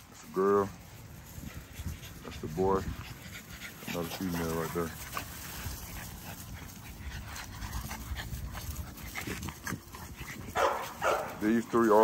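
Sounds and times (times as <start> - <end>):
puppies scuffling on grass: 0.0 - 12.0
high puppy cry: 10.5 - 11.4.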